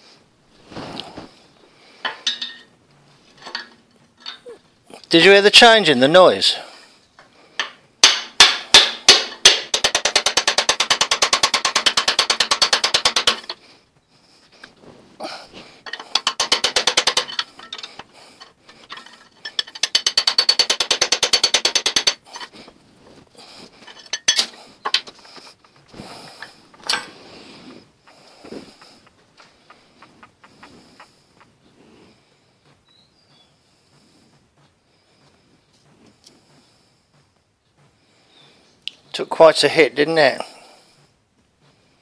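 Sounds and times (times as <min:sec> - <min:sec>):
steel bar striking metal: 0:07.6 - 0:13.6.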